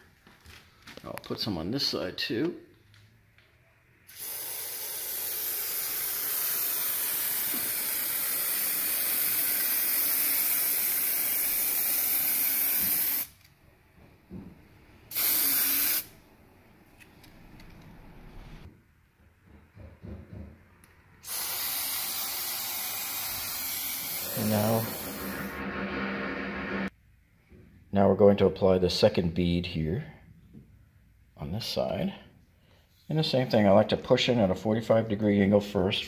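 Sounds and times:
aerosol spray hissing: 0:04.1 - 0:13.4, 0:15.1 - 0:16.1, 0:21.2 - 0:26.9.

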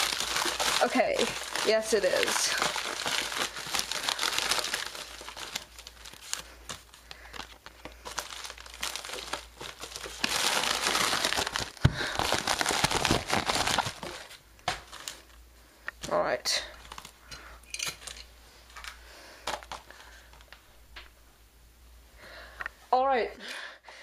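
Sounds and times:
packing paper crinkling: 0:00.0 - 0:15.4, 0:16.7 - 0:17.2.

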